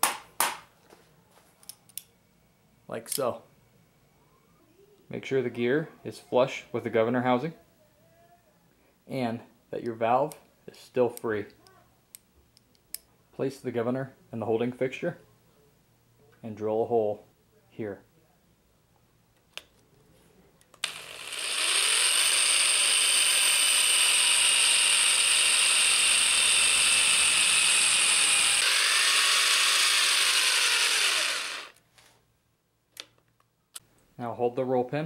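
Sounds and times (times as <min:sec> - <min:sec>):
electric drill whining: 0:20.8 - 0:31.8.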